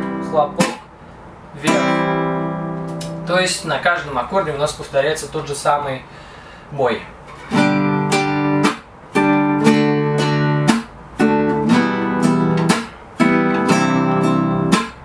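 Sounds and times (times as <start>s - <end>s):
classical guitar strumming: 0.0s - 0.9s, 1.6s - 3.8s, 7.3s - 15.0s.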